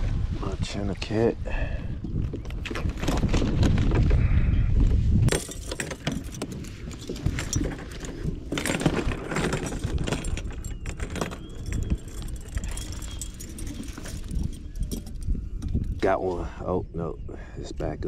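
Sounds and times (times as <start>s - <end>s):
metal chain jangling: 5.3s - 15.4s.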